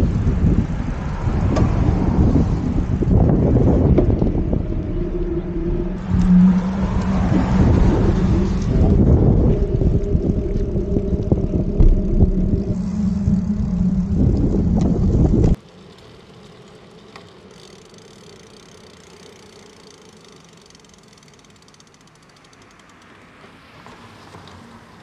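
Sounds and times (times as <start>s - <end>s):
wind buffeting microphone: 0.0s - 15.6s
bicycle rolling noise: 0.0s - 25.0s
low hum: 2.1s - 15.6s
bicycle click: 13.3s - 23.8s.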